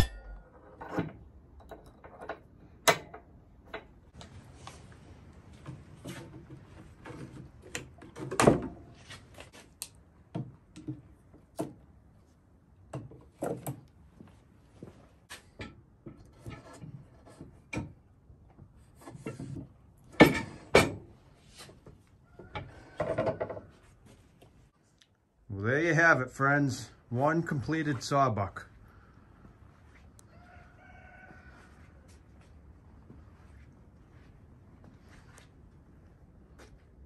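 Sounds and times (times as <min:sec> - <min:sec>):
clicks and clinks of metal parts: 0:00.0 - 0:04.0.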